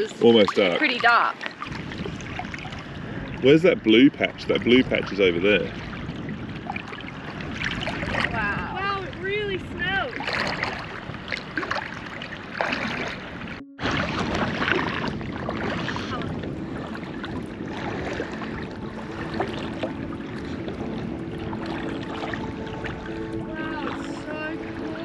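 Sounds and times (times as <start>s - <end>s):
shallow seawater: 0.0s - 25.0s
wind: 0.0s - 25.0s
faint background music: 15.6s - 25.0s.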